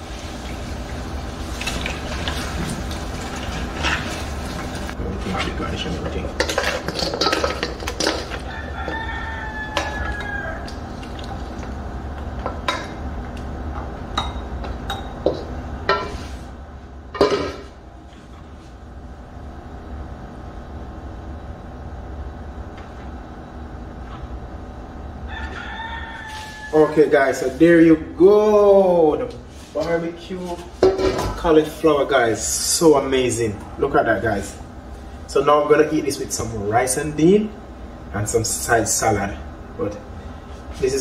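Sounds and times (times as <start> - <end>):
wooden spoon scraping bowls: 1.6 - 11.6.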